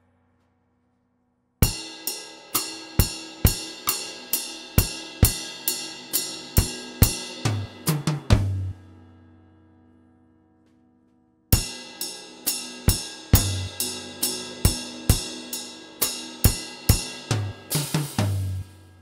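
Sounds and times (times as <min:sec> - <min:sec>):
acoustic drum kit: 0:01.6 - 0:08.8, 0:11.6 - 0:19.0.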